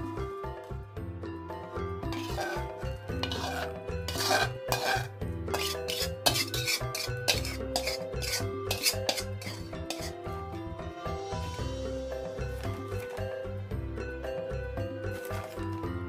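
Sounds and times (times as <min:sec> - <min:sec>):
background music: 0:00.0 - 0:16.0
metal spatula scraping wok: 0:02.0 - 0:10.4, 0:15.1 - 0:15.7.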